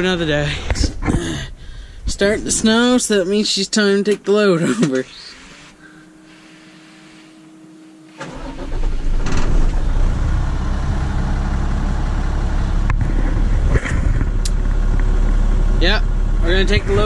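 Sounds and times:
truck engine cranking and idling: 8.1 - 17.0.

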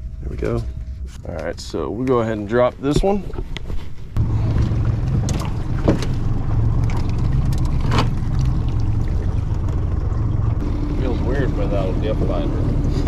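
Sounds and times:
outboard motor idling: 4.2 - 13.0.

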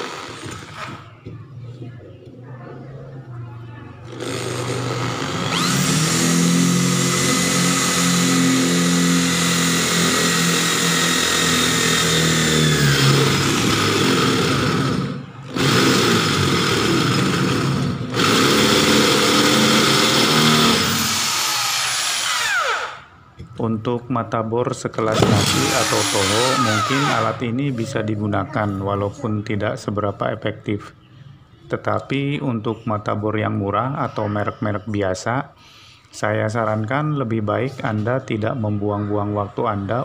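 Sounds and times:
electric drill boring through metal: 0.0 - 1.0, 4.1 - 23.1, 25.1 - 27.4
drill bit grinding in metal: 4.1 - 23.1, 25.1 - 27.4.

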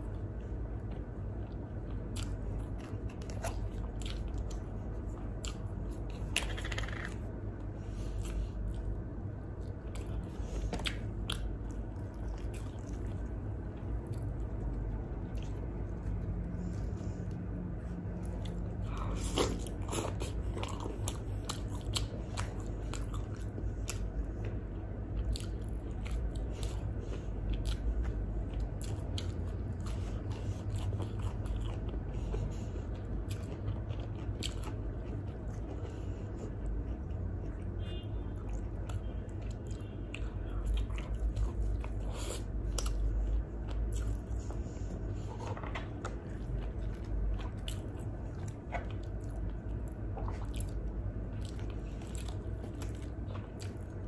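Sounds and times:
low steady hum: 0.0 - 54.0
wet chewing and biting: 0.2 - 37.6, 38.4 - 54.0
food crunches: 5.3 - 7.6.

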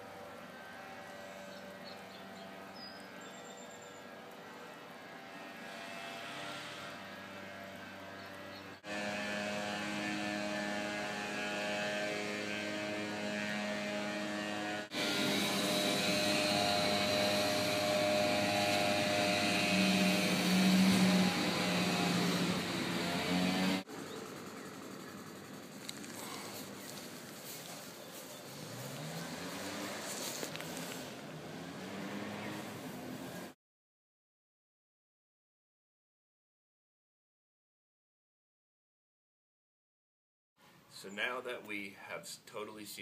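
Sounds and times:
electric water pump humming: 0.0 - 28.0.

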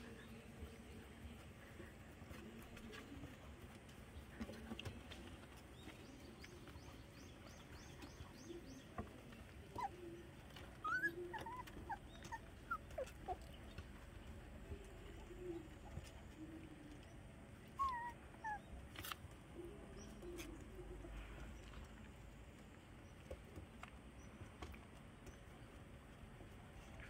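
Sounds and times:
puppy whimpering: 9.5 - 13.7, 17.7 - 18.8.

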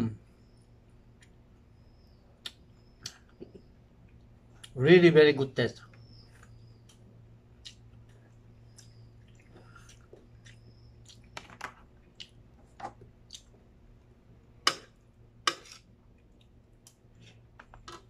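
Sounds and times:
steady low hum: 0.0 - 18.0
person chewing: 6.8 - 11.4, 12.0 - 13.7.

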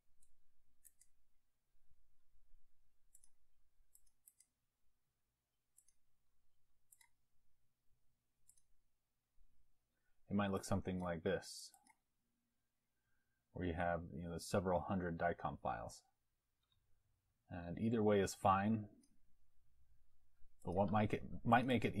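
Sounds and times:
computer mouse clicks: 0.1 - 1.3, 3.0 - 4.6, 5.7 - 6.1, 6.8 - 7.3, 8.4 - 8.8, 10.8 - 12.1.

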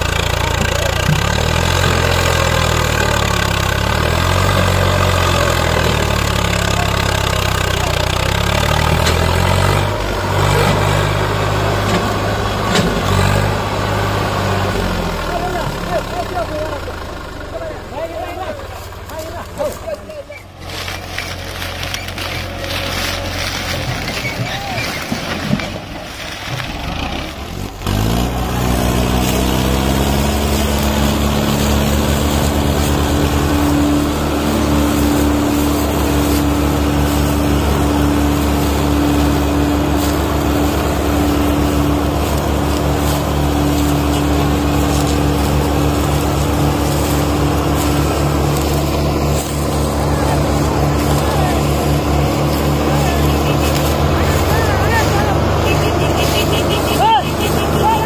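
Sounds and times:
tractor diesel engine revving: 0.0 - 58.0.

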